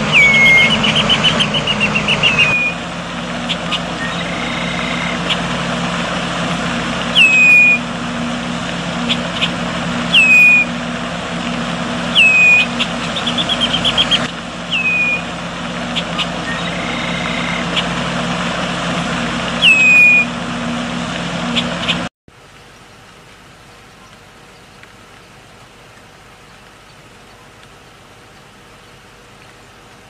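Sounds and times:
bird piping whistles: 0.0 - 2.8, 3.4 - 5.5, 7.1 - 7.9, 9.0 - 10.8, 12.1 - 15.3, 15.9 - 17.9, 19.6 - 20.4
low hum: 0.0 - 30.0.

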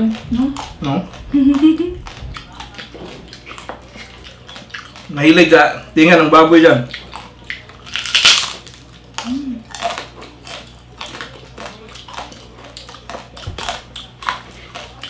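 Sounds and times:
chewing with small crunches: 0.0 - 15.0
crunching bite: 6.9 - 15.0.

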